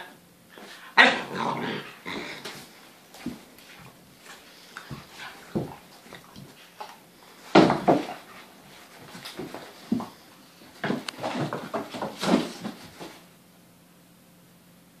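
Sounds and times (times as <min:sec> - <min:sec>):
dogs play-fighting scuffles: 0:02.1 - 0:13.3
thumps of dogs leaping: 0:04.9 - 0:06.5, 0:07.5 - 0:10.2, 0:10.8 - 0:13.2.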